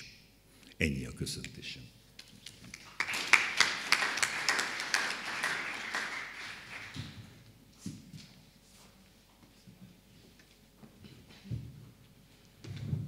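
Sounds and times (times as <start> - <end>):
audience applauding: 2.7 - 7.4.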